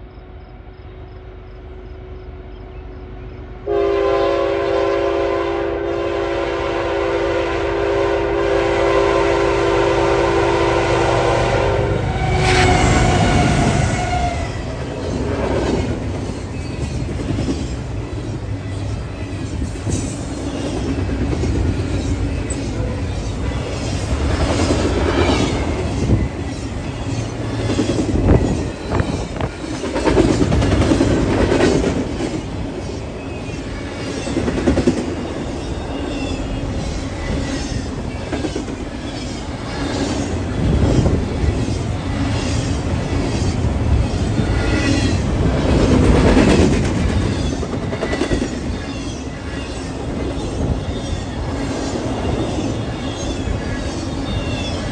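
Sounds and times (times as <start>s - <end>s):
locomotive air horn: 3.6s - 14.7s
train wheels clattering on track: 12.1s - 54.9s.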